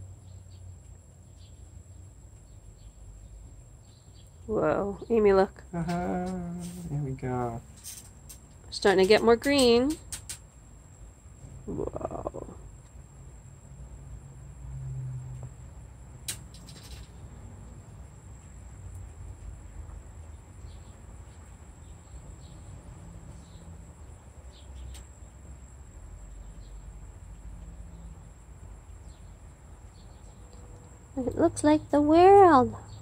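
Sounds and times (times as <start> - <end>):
high-pitched insect trill: 5.6 - 10.6, 11.3 - 12.9.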